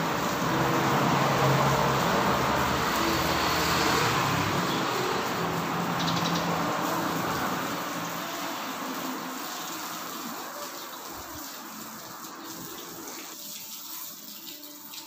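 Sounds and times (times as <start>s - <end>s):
car driving past: 0.0s - 9.5s.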